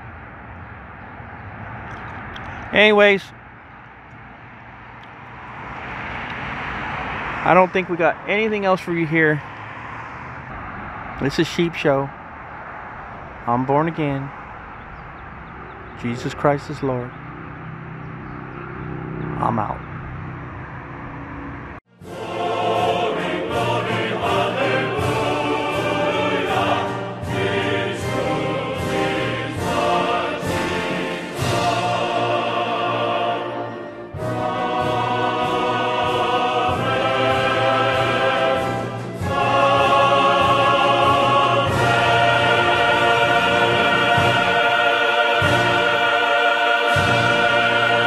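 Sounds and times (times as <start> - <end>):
choir singing long notes: 21.9 - 48.0.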